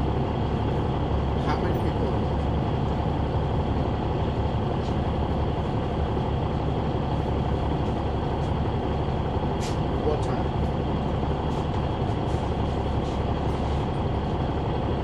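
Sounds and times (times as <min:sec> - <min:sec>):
bus diesel engine rumble: 0:00.0 - 0:15.0.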